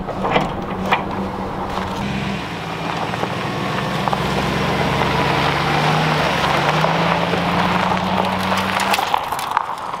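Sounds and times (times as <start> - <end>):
pickup truck towing trailer: 0.0 - 10.0
sharp clicks and rattles: 6.5 - 10.0.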